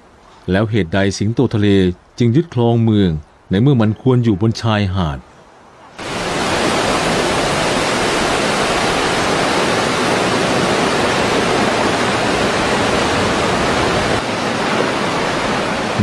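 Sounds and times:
ocean waves breaking: 6.0 - 16.0.

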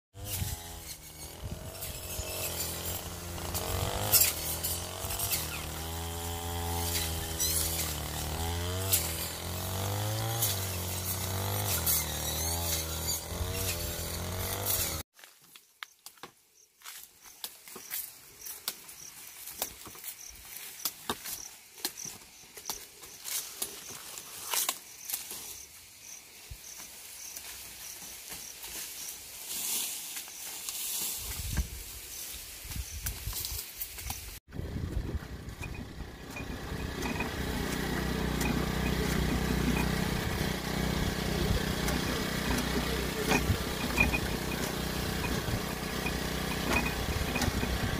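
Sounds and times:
small engine revving: 0.2 - 15.1, 33.4 - 47.9
dry leaves rustling: 0.2 - 15.7, 16.8 - 47.9.

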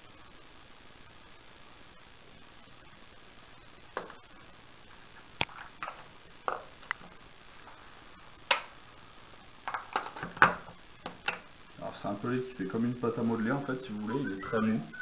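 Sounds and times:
sharp clicks and taps: 8.5 - 8.7.

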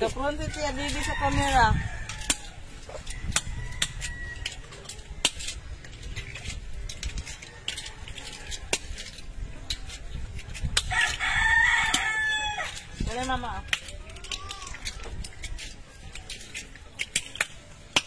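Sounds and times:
rooster crowing: 0.9 - 4.7, 10.9 - 12.8.

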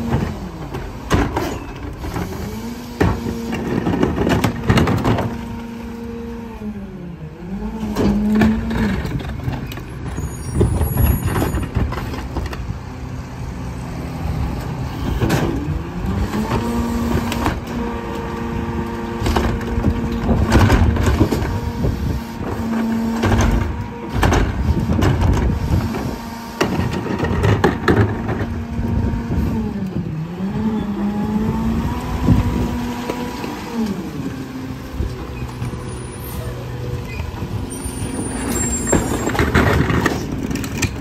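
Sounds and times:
trash clattering: 0.0 - 5.6, 22.5 - 29.0, 37.1 - 41.0
diesel engine revving: 0.0 - 41.0
carts clanking against hopper: 34.9 - 41.0.

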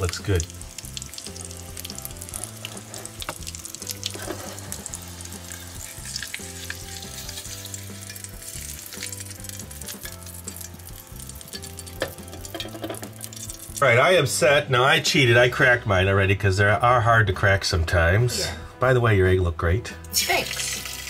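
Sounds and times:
grease sizzling in a frying pan: 0.0 - 14.4, 20.1 - 21.0
spoon and spatula clicking in pan: 6.1 - 10.8, 11.4 - 13.6.

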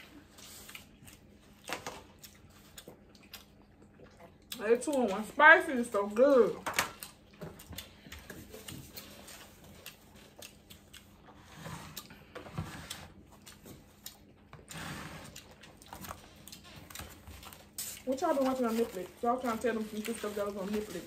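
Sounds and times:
chewing: 0.0 - 21.0.

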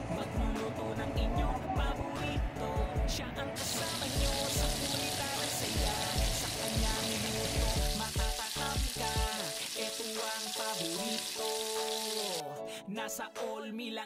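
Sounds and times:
background music with bass beat: 0.0 - 9.6
chicken deep-frying in oil: 3.6 - 12.4.

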